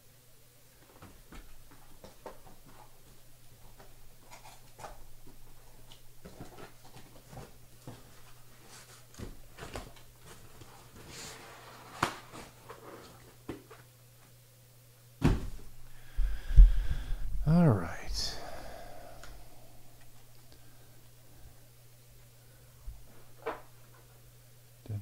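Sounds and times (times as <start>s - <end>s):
thump: 15.2s - 15.6s
low hum: 15.4s - 23.4s.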